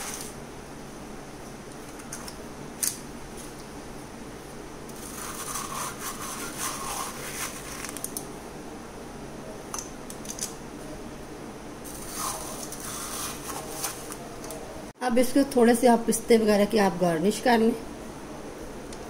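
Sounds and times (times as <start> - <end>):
ice cream scoop scraping: 5.0 - 8.0, 11.9 - 14.2.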